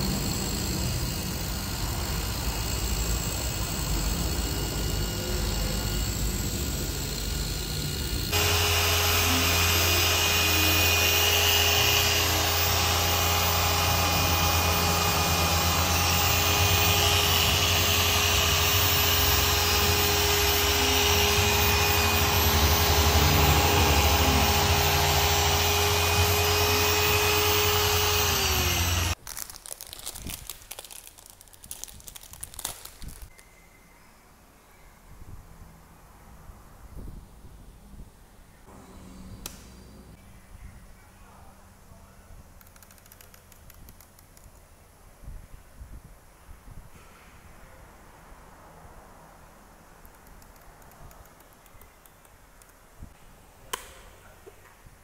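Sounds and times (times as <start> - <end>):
polishing machine motor whine: 0.0 - 29.2.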